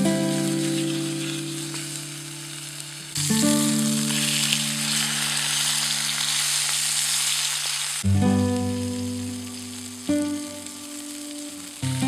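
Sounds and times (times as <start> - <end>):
background music with held notes: 0.0 - 5.3, 8.0 - 12.0
steak sizzling in a frying pan: 0.0 - 12.0.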